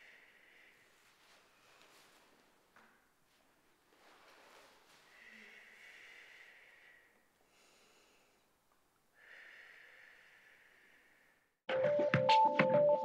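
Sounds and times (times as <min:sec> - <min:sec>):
woman breathing slowly: 0:00.0 - 0:02.5, 0:04.1 - 0:11.6.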